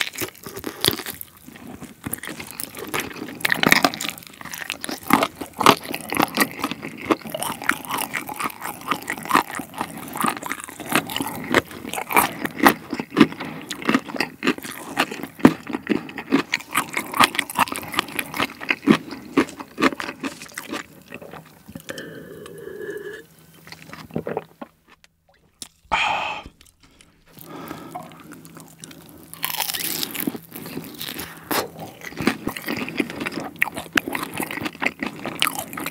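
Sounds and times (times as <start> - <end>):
chewing with wet crunches: 0.0 - 22.6, 26.6 - 35.9
person humming: 21.8 - 23.3, 25.9 - 26.6.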